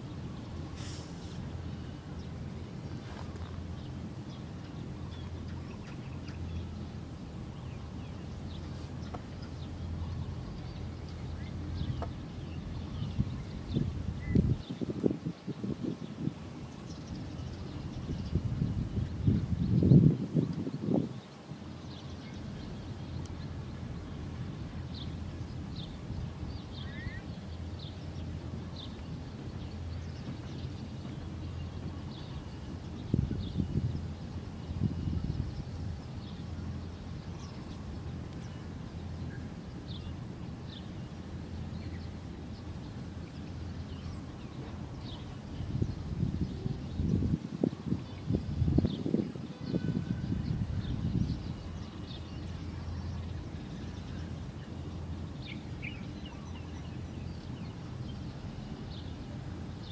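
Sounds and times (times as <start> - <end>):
low outdoor rumble: 0.0 - 59.9
bird chirps and calls: 25.8 - 28.0.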